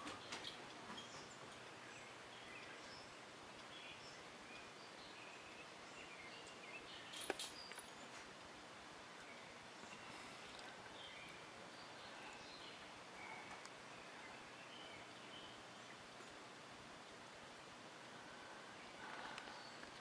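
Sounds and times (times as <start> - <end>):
bird chirps: 0.0 - 8.2, 9.2 - 16.4.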